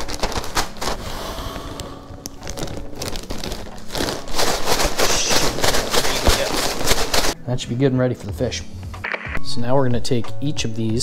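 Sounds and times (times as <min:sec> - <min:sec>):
plastic bag crinkling: 0:00.0 - 0:01.0, 0:01.7 - 0:07.4
crumbs rustling in a bag: 0:00.0 - 0:01.1, 0:01.7 - 0:07.4.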